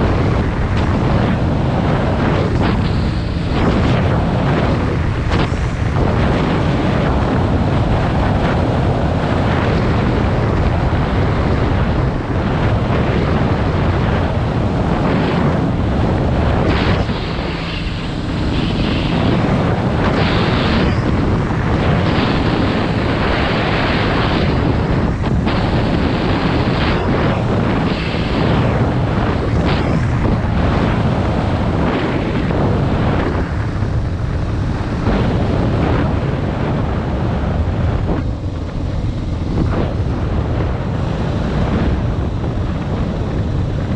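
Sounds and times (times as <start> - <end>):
motorcycle engine running: 0.0 - 31.9, 32.7 - 43.9
wind buffeting microphone: 0.0 - 43.9.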